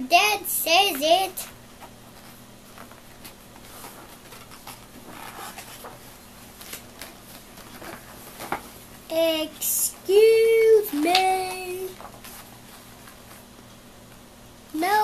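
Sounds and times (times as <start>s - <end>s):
faint steady hum: 0.0s - 15.0s
paper pages rustling and turning: 1.7s - 9.0s, 10.9s - 14.2s.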